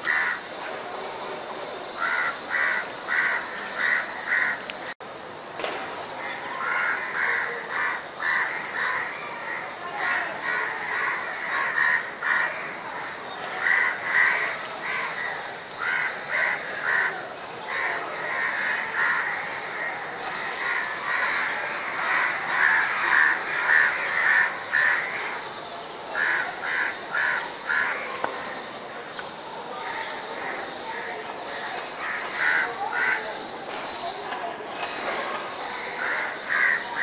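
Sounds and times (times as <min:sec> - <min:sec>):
crows cawing: 0:00.0 - 0:00.4, 0:02.0 - 0:04.6, 0:06.6 - 0:12.7, 0:13.6 - 0:25.4, 0:26.2 - 0:28.1, 0:31.5 - 0:33.2, 0:35.7 - 0:37.0.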